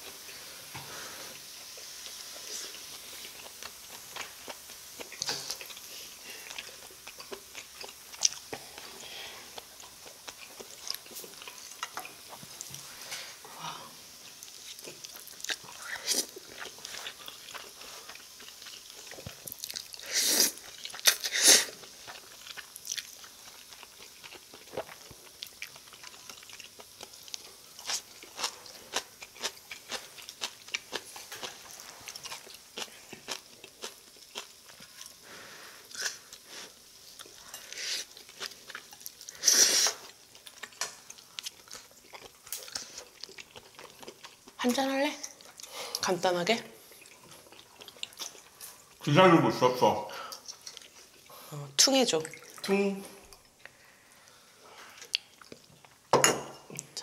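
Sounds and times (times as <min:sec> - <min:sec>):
chewing: 0:01.6 - 0:13.5, 0:14.2 - 0:46.1, 0:46.8 - 0:49.1, 0:50.3 - 0:51.4, 0:52.2 - 0:56.1
person slurping noodles: 0:20.0 - 0:21.8, 0:39.3 - 0:40.1.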